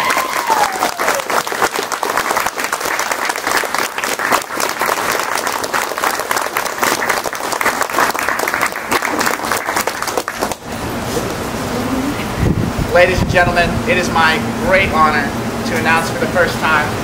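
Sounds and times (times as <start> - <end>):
crowd applauding: 0.0 - 10.7.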